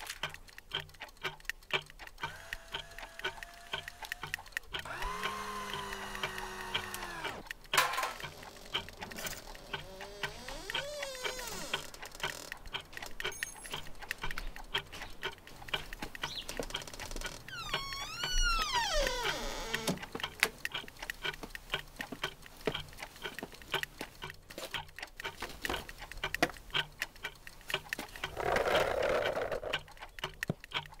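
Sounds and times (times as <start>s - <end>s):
clock ticking: 0.0s - 31.0s
motor whine: 4.8s - 7.5s
creaking tone sliding: 8.1s - 13.8s, 16.7s - 20.0s, 28.3s - 29.8s.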